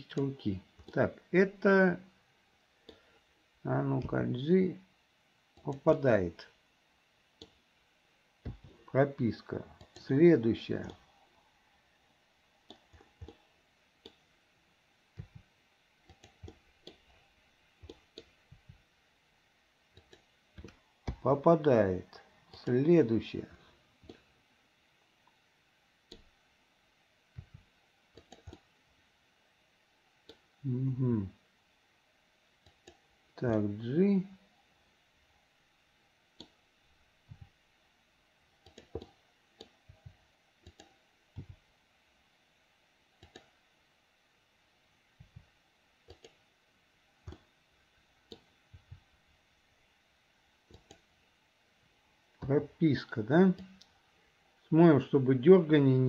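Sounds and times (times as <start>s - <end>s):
mouse and keyboard clicks: 28.2s - 28.6s, 38.6s - 39.8s.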